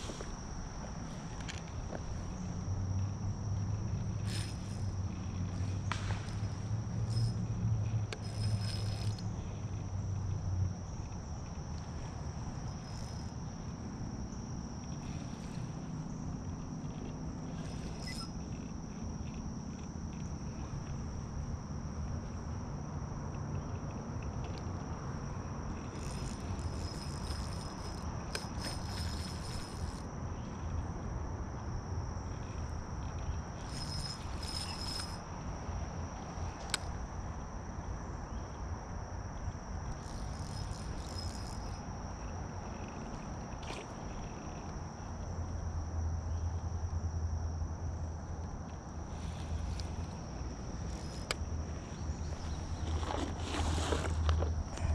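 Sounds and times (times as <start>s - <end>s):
insect buzzing flurries: 0.0s - 10.2s, 10.8s - 21.4s, 25.2s - 30.2s, 32.1s - 35.6s, 39.9s - 45.0s, 49.1s - 54.3s
insects trilling: 0.0s - 54.9s.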